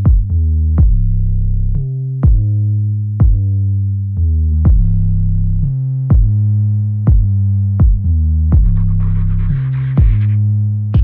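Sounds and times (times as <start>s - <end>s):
drum machine beat: 0.0s - 1.2s, 2.2s - 2.6s, 3.2s - 3.5s, 4.6s - 5.1s, 6.1s - 6.5s, 7.1s - 11.0s
synthesizer bass notes: 0.0s - 11.0s.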